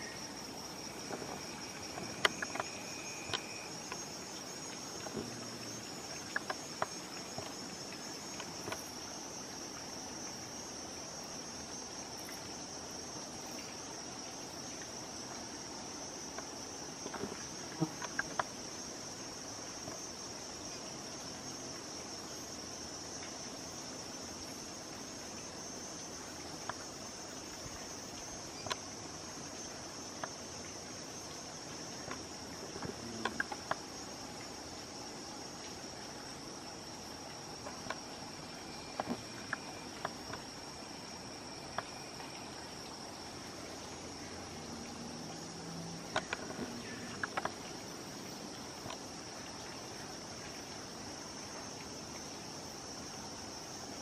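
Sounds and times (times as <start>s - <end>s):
high-pitched insect chorus: 0.0s - 54.0s
sharp insect clicks: 0.9s - 5.3s, 6.1s - 9.0s, 16.2s - 18.6s, 27.9s - 28.9s, 32.0s - 33.9s, 37.6s - 38.1s, 38.8s - 40.5s, 46.1s - 47.7s.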